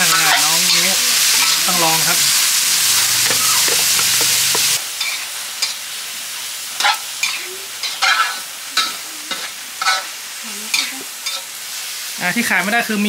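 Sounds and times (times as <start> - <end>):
food sizzling in a hot pan: 0.0 - 13.0
spatula scraping a pan: 0.1 - 4.8.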